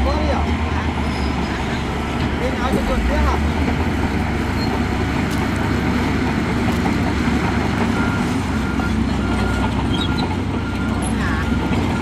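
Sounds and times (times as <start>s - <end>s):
diesel earthmoving machinery running: 0.0s - 12.0s
reversing alarm beeping: 7.9s - 12.0s.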